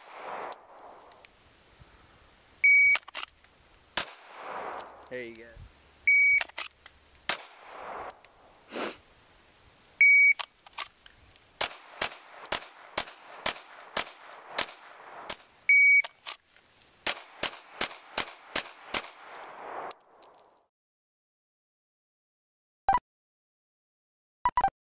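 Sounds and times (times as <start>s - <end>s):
pistol shots: 4.0s - 5.1s, 7.3s - 8.2s, 11.6s - 15.5s, 17.0s - 19.9s.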